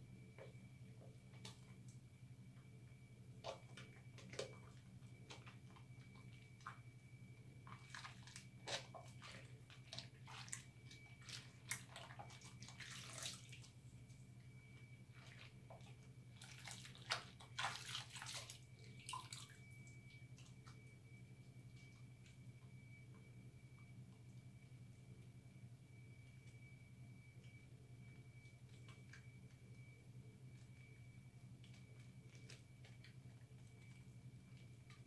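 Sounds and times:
hands rubbing soap in water: 7.6 - 13.8, 15.1 - 19.5
light water splashing: 7.6 - 13.8, 15.1 - 20.8.

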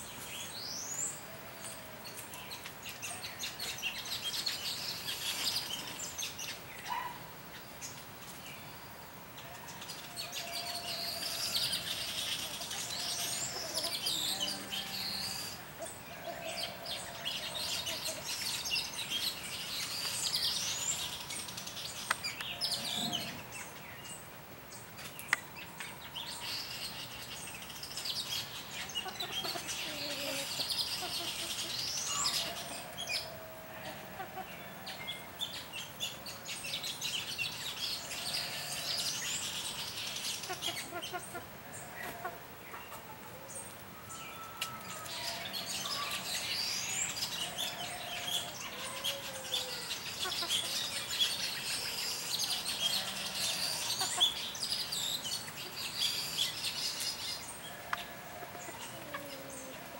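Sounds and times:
weaver birds chattering: 0.0 - 59.9.

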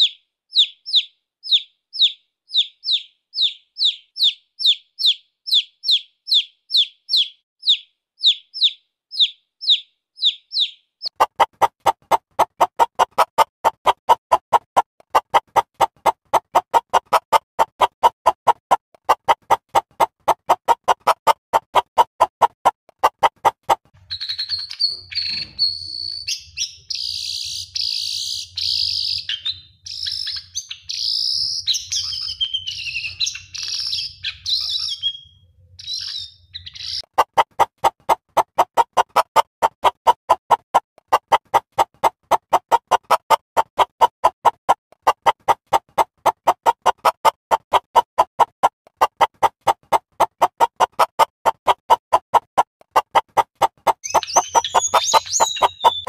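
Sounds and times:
birds singing: 0.0 - 11.1, 24.0 - 37.1, 54.0 - 56.0
chicks peeping: 0.0 - 11.7, 24.1 - 37.6, 52.9 - 56.0
fast clicking pulses: 11.0 - 24.0, 37.0 - 56.0.

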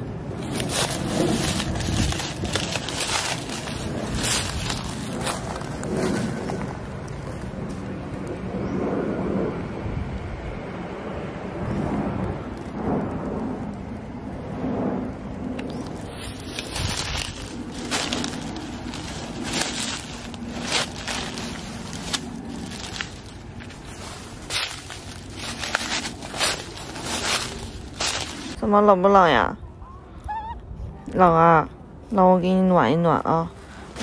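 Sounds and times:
rustling and crackling: 0.3 - 8.3, 15.5 - 28.6.

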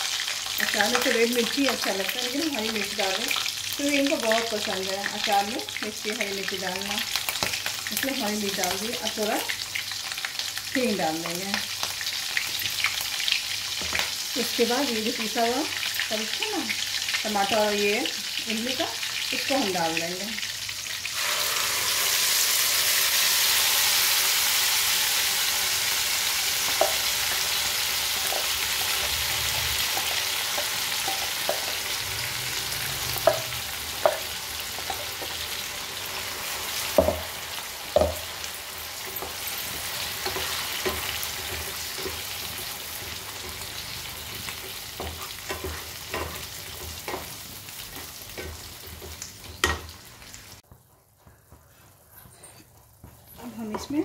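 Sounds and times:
paste sizzling in hot oil: 0.0 - 50.6
wooden spatula knocking pan: 36.9 - 38.3.

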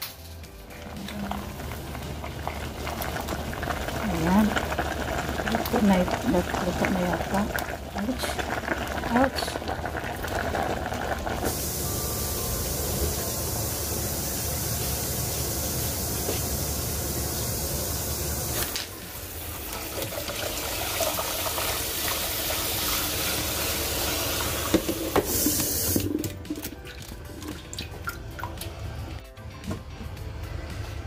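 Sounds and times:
water splashing into sink: 19.8 - 28.8
water dripping: 26.0 - 28.8.

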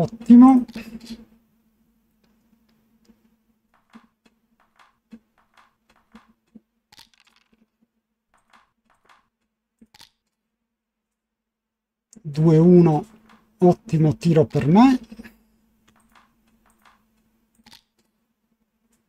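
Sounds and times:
faint steady hum: 0.0 - 6.9, 9.4 - 19.0
faint small clicks: 15.9 - 18.2.

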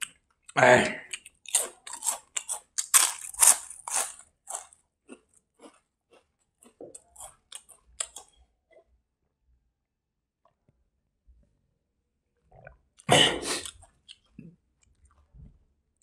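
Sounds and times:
person chewing food: 0.0 - 8.9, 12.5 - 15.6.

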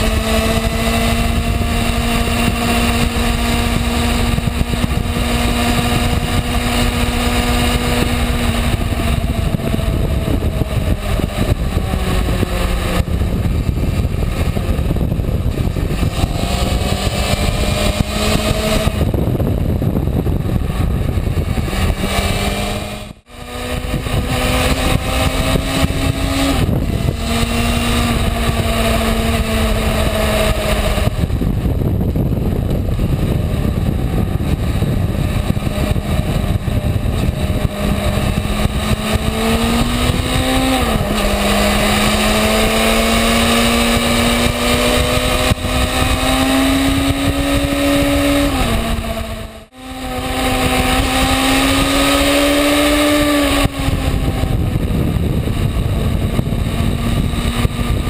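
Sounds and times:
motorcycle engine running: 0.0 - 58.0
wind and road rush: 0.0 - 58.0.

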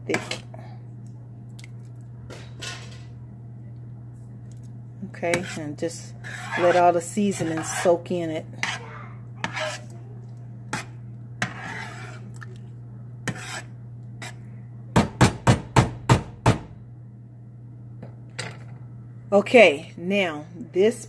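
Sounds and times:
steady low hum: 0.0 - 21.0
spoon scraping through sauce in pan: 5.2 - 8.8, 9.4 - 10.0, 10.7 - 12.6, 13.2 - 14.5.

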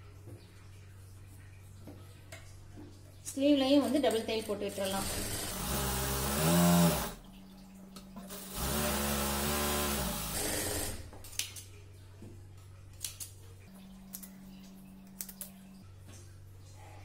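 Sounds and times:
low steady hum: 0.0 - 10.3, 11.0 - 17.0
sewing machine stitching: 4.8 - 7.2, 8.3 - 11.0.

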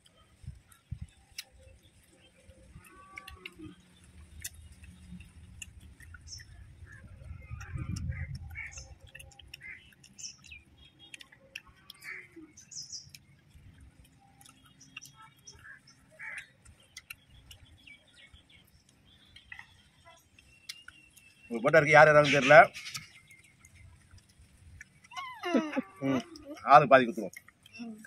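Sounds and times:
small birds chirping: 0.0 - 28.0
faint clicks: 0.5 - 25.5.

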